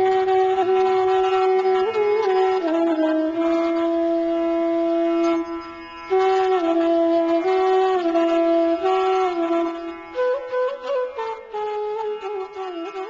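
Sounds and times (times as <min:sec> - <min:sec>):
wind instrument long notes: 0:00.0 - 0:13.0.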